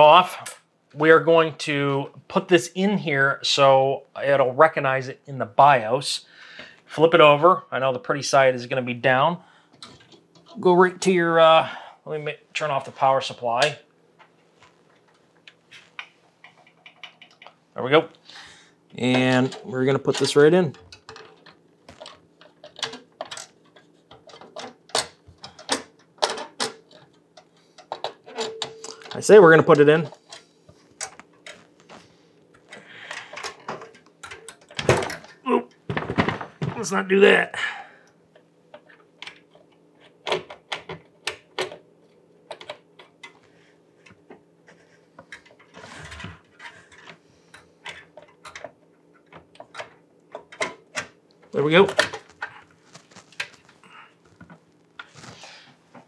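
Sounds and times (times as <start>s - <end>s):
rustling scrape: 55.0s - 56.0s.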